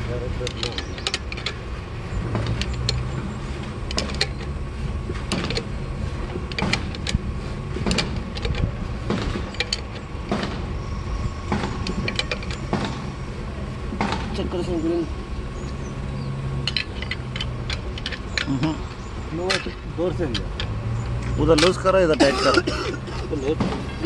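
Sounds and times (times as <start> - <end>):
steady low rumble: 0.0 - 24.0
metal clicks and clinks: 0.4 - 1.6, 2.4 - 3.1, 7.9 - 8.7, 9.5 - 10.1, 11.8 - 12.6, 16.6 - 18.7, 19.4 - 22.8.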